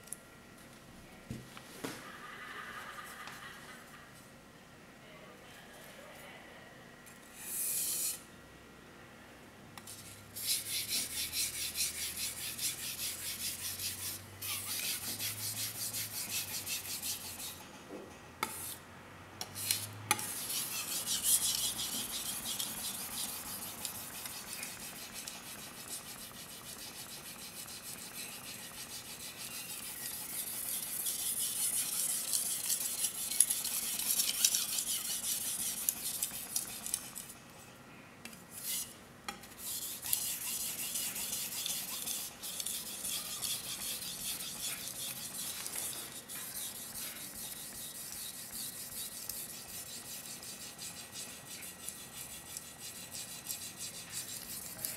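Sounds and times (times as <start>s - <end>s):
blade scraping on whetstone: 7.4s - 8.2s, 9.9s - 17.6s, 19.5s - 37.2s, 38.5s - 54.9s.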